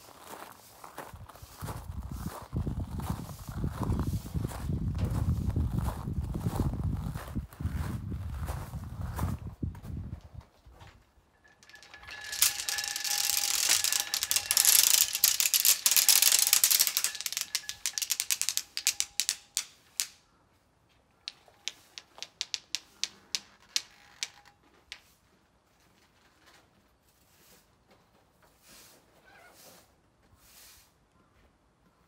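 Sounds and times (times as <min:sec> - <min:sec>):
wooden beads clattering: 0:11.4 - 0:20.2, 0:21.2 - 0:25.0.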